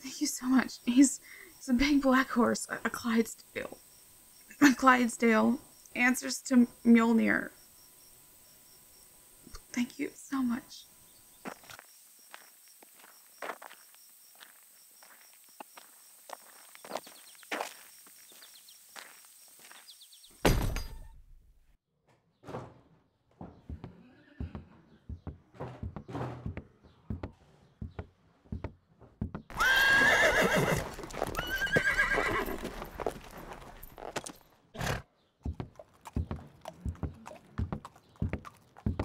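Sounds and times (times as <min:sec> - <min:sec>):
footsteps: 0:11.4 - 0:19.9, 0:30.8 - 0:34.5
hoof clops: 0:23.4 - 0:34.6, 0:35.4 - 0:39.0
horse whinnying: 0:29.5 - 0:33.8.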